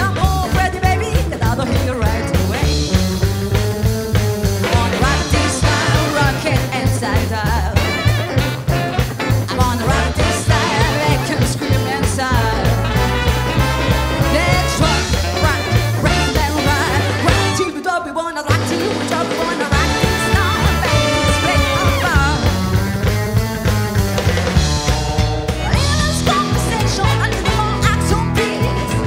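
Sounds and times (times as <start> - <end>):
woman singing: 0.0 - 2.7, 4.6 - 8.2, 9.5 - 13.0, 14.2 - 22.5, 25.6 - 29.0
upright bass line: 0.0 - 17.8, 18.5 - 29.0
drums: 0.0 - 29.0
electric guitar: 0.0 - 29.0
horn section: 4.4 - 7.0, 7.6 - 29.0.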